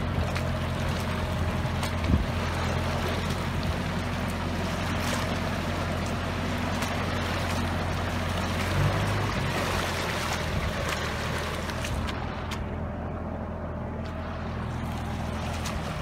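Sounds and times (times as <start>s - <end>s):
log dragging through mud: 0.0s - 12.7s, 14.0s - 16.0s
tractor diesel engine under load: 0.0s - 16.0s.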